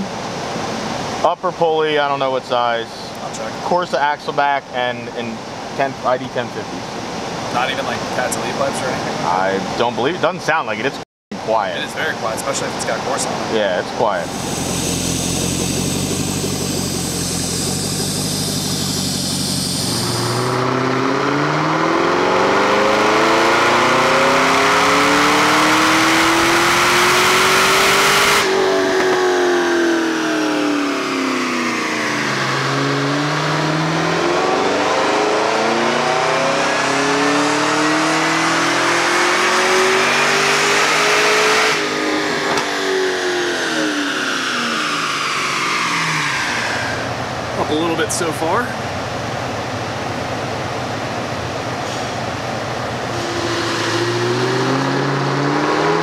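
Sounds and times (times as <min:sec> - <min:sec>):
car engine revving on a dyno: 0:12.5 - 0:48.0, 0:51.2 - 0:56.0.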